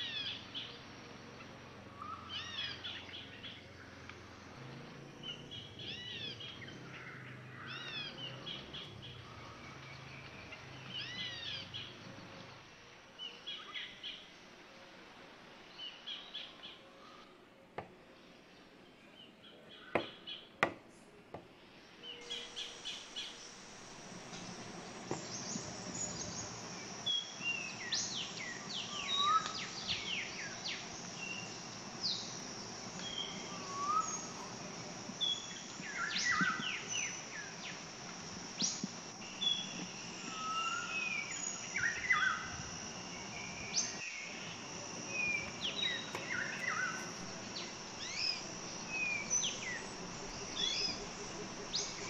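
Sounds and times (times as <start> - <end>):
birds chirping: 0.0 - 14.3, 21.6 - 52.0
high-pitched insect drone: 22.2 - 52.0.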